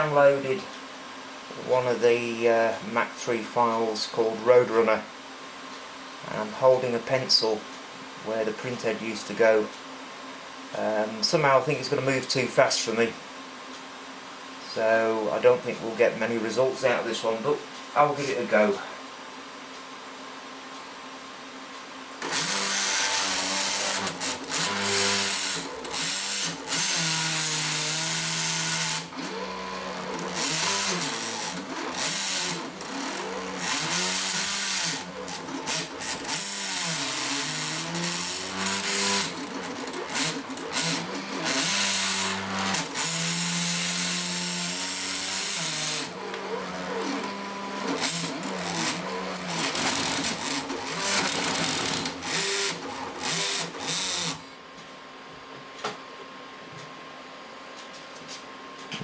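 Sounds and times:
stepper motors whining: 22.2s - 54.5s.

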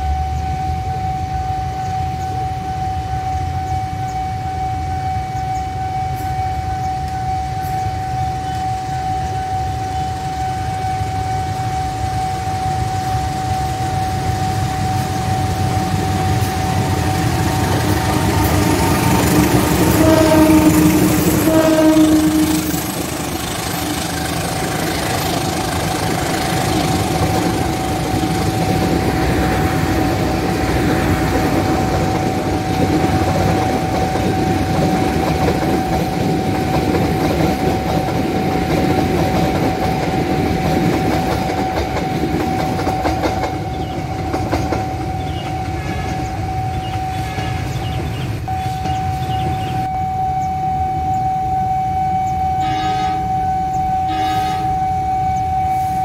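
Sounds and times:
level crossing alarm tone: 0.0s - 56.0s
train wheels clattering on rails: 11.4s - 49.9s.

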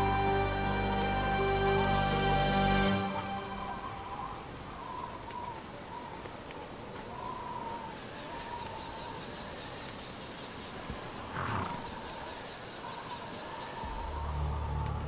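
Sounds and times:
horse snorting: 11.2s - 12.0s.

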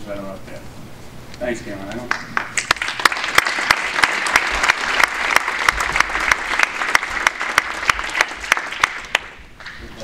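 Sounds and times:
single sharp claps: 2.0s - 9.8s
audience applauding: 2.1s - 9.7s.

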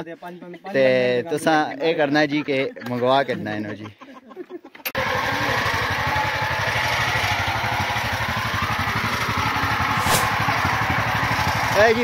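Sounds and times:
small tractor engine chugging: 5.0s - 12.0s.

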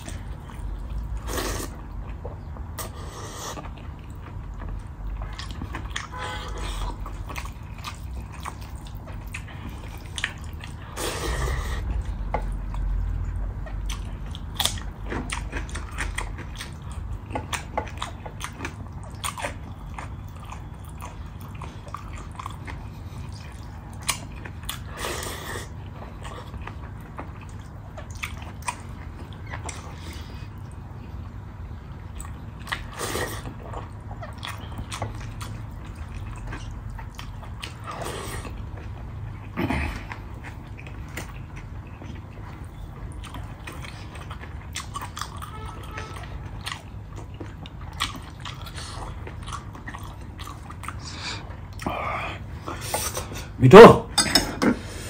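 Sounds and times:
person chewing food: 0.0s - 53.6s
slurping: 1.0s - 1.8s, 6.1s - 12.5s.

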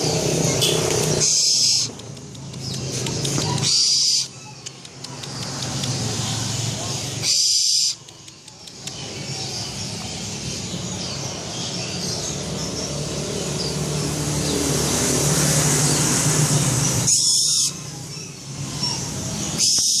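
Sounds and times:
low traffic rumble: 0.0s - 20.0s
owl hissing: 1.2s - 2.0s, 3.6s - 4.4s, 7.2s - 8.0s.

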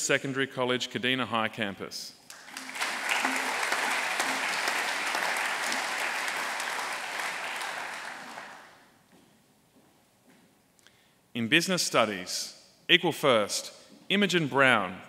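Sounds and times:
audience applauding: 2.3s - 8.8s.

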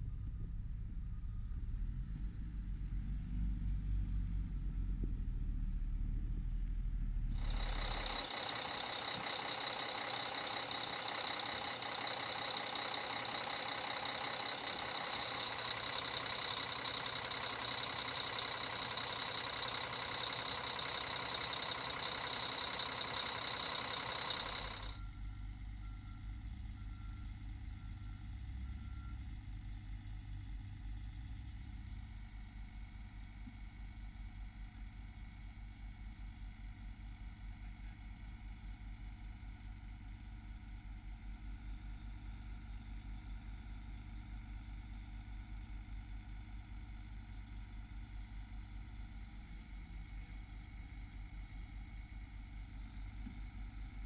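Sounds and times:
diesel engine idling: 7.3s - 25.1s.

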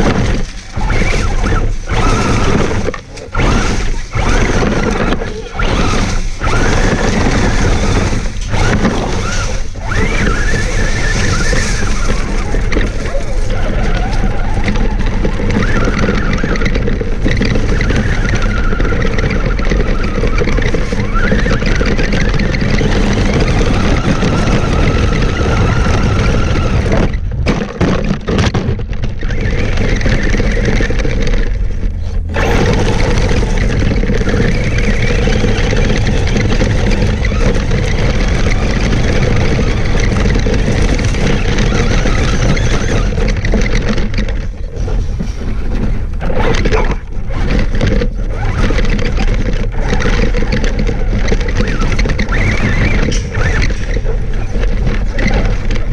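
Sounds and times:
electric motor whine: 0.0s - 44.5s
tyres crunching on gravel: 0.0s - 55.9s.

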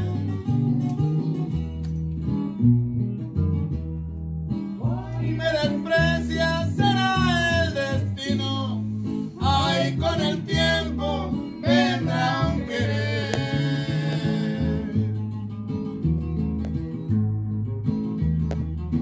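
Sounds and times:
guitars and walking bass: 0.0s - 19.0s
person singing: 4.8s - 15.2s.

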